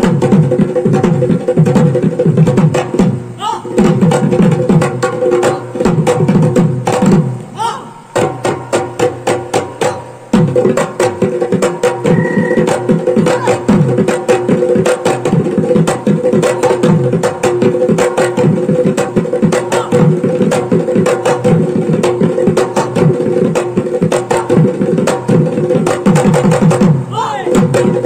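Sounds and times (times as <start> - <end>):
fast dense drumming: 0.0 - 28.0
steady held tone: 12.0 - 13.0.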